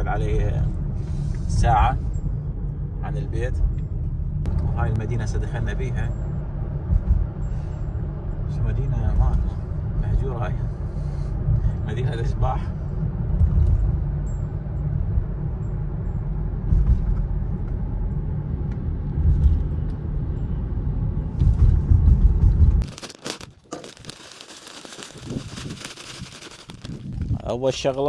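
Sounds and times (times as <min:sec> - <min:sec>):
car cabin road rumble: 0:00.0 - 0:28.0
plastic bag crinkling: 0:22.8 - 0:27.4.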